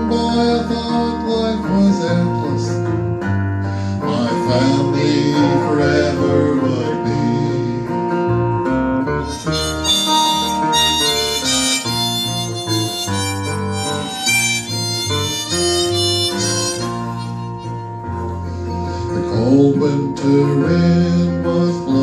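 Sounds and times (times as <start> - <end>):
acoustic guitar: 0.0 - 22.0
electric bass: 0.0 - 22.0
harmonica solo: 9.0 - 19.3.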